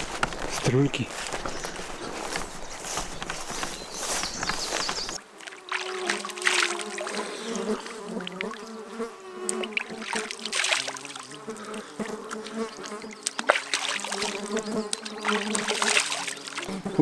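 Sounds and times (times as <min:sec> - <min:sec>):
insect buzzing: 0:01.1 - 0:17.0
water splashing on face: 0:05.5 - 0:07.2, 0:09.5 - 0:11.3, 0:12.3 - 0:16.7.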